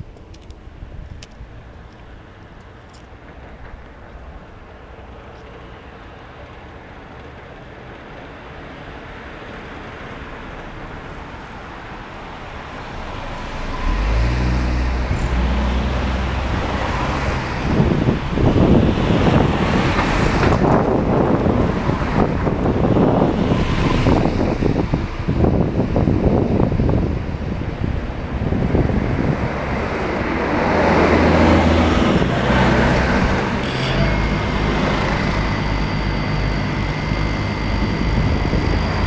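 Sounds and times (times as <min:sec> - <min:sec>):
tyres rushing on road: 0:00.0 - 0:39.0
truck engine hum: 0:10.1 - 0:39.0.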